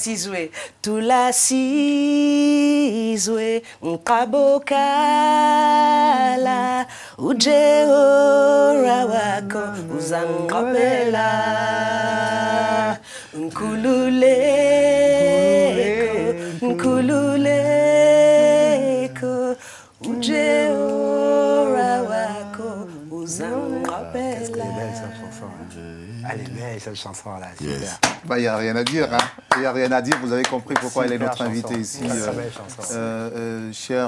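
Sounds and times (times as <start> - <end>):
woman singing a cappella: 0.0 - 25.8.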